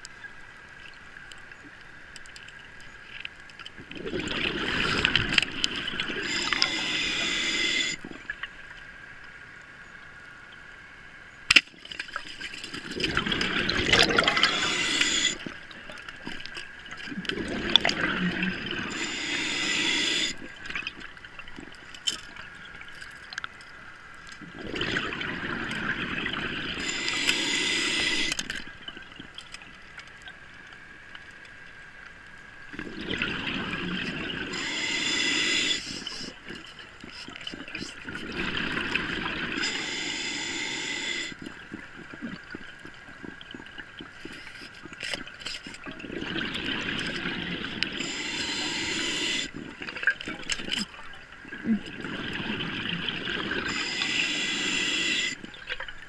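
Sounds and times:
rush of air and bubbles: 3.8s - 8.4s, 12.3s - 21.8s, 24.4s - 29.4s, 32.7s - 50.9s, 51.5s - 55.7s
diver breathing through regulator: 6.2s - 8.0s, 13.9s - 15.5s, 18.8s - 20.4s, 26.8s - 28.4s, 34.5s - 36.5s, 39.5s - 41.4s, 48.0s - 49.6s, 53.6s - 55.4s.

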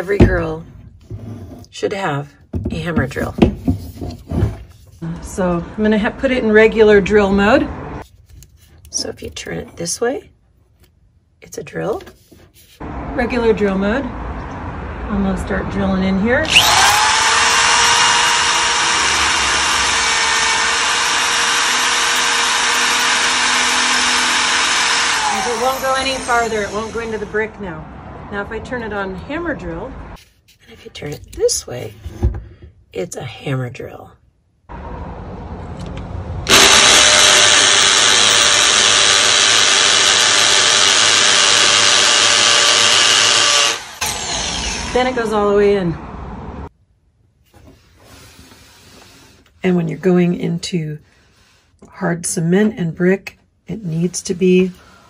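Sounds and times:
hammer drill running: 16.4s - 27.4s, 36.5s - 45.4s
drill bit spinning against brick: 16.5s - 27.4s, 36.5s - 45.2s.

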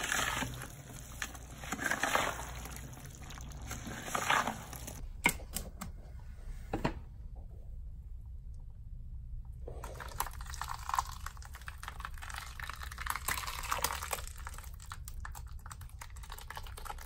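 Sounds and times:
wet mix stirred in plastic bucket: 0.0s - 5.0s, 9.7s - 17.0s.

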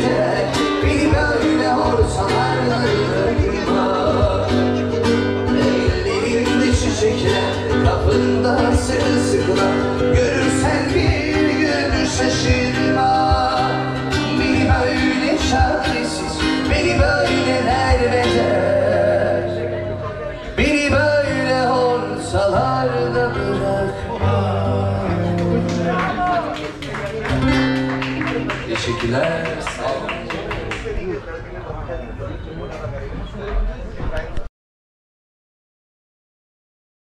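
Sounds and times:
person singing: 0.0s - 26.0s
guitar: 0.0s - 31.3s.

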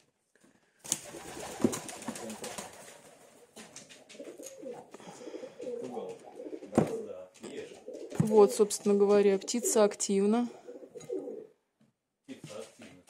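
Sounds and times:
pigeon cooing: 3.6s - 8.8s, 9.4s - 11.6s.

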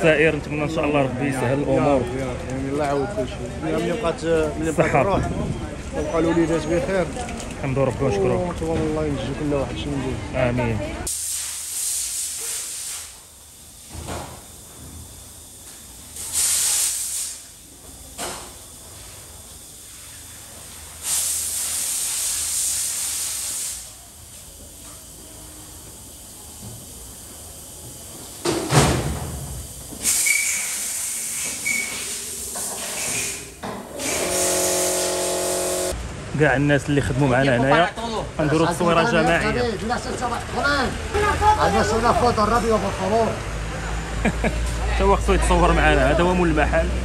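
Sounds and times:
water spraying across floor: 11.1s - 13.3s, 16.2s - 17.5s, 19.8s - 24.0s.

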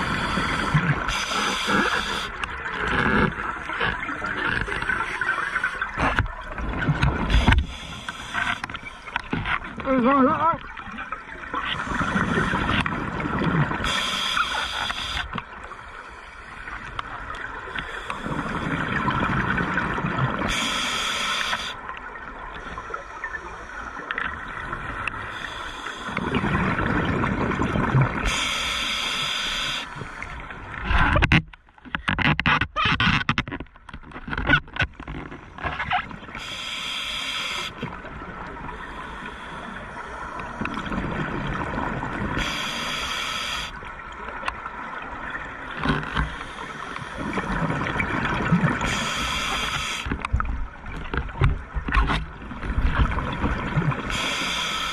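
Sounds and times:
regulator inhale hiss: 0.0s - 2.4s, 7.3s - 9.2s, 13.8s - 16.8s, 20.5s - 21.8s, 25.2s - 26.2s, 28.2s - 30.4s, 36.4s - 37.8s, 38.8s - 40.7s, 42.4s - 43.8s, 48.8s - 50.1s, 54.1s - 54.9s
exhaled bubbles gurgling: 0.0s - 15.8s, 16.5s - 31.2s, 37.7s - 54.9s.

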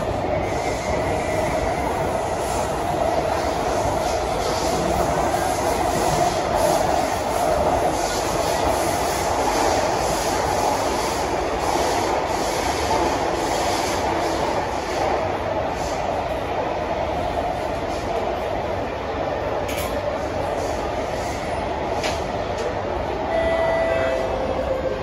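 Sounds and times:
train wheels rumbling on rails: 0.0s - 25.0s.

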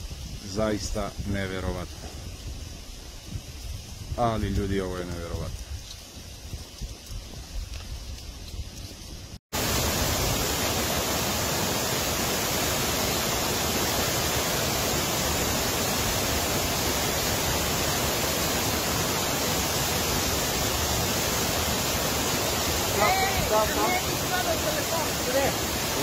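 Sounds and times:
waterfall roaring: 9.6s - 26.0s.

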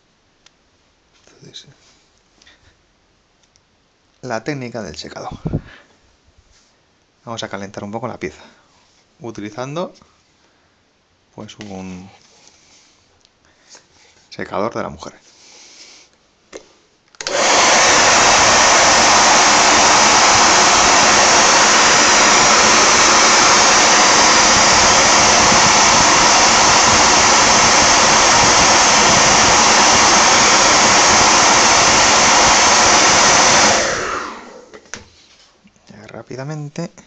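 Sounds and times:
hair dryer running: 17.2s - 35.1s.

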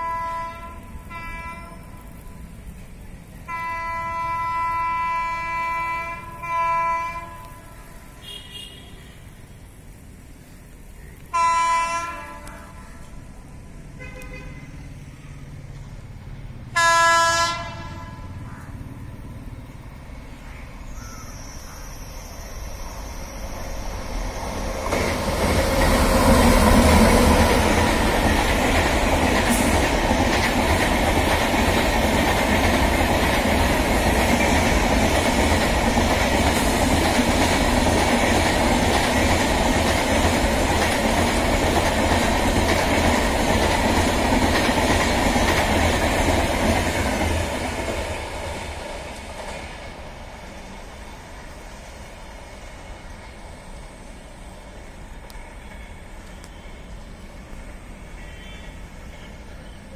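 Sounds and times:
locomotive horn blasts: 0.0s - 2.0s, 3.5s - 9.2s, 11.3s - 13.0s, 14.0s - 14.8s, 16.8s - 18.4s, 58.2s - 58.8s
train wheels on rails: 0.0s - 59.9s.

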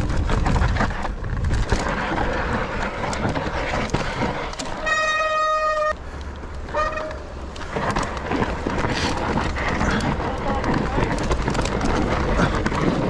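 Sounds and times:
bike rattling over rough ground: 0.0s - 13.0s.

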